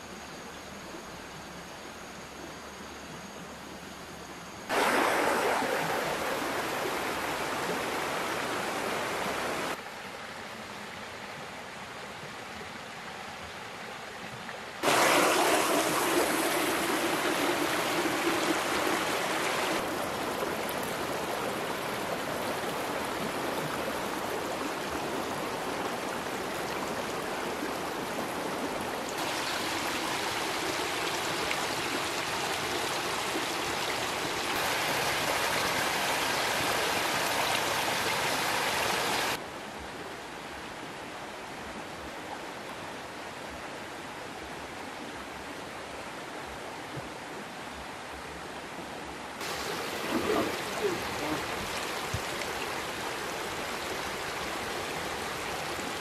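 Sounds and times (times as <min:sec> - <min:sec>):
running water: 0:04.6 - 0:09.8, 0:14.2 - 0:39.4, 0:49.4 - 0:56.0.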